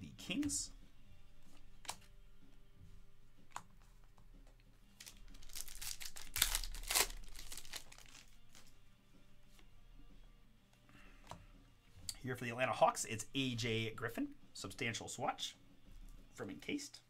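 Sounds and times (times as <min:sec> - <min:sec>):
foil pack tearing and crinkling: 0:05.0 - 0:08.7.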